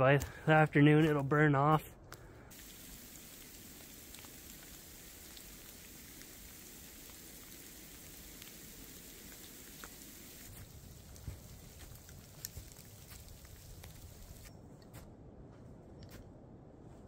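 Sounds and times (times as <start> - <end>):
light rain hissing: 2.5 - 14.5
raindrops ticking: 2.5 - 14.5
footsteps on snow: 9.8 - 17.0.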